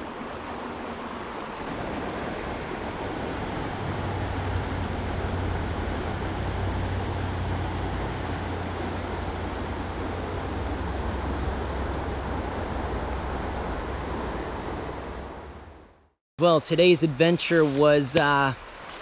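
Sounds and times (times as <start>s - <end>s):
creek water rushing: 0.0s - 19.0s.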